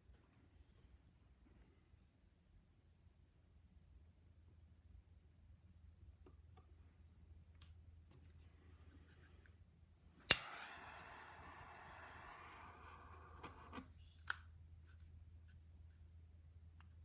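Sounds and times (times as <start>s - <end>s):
butane torch hissing: 10.2s - 14.2s
torch ignition click: 10.2s - 14.5s.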